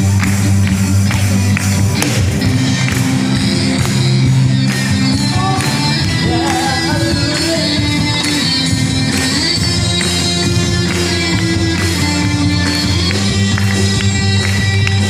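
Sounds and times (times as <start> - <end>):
steady bass line: 0.0 - 15.0
person singing: 5.2 - 8.1.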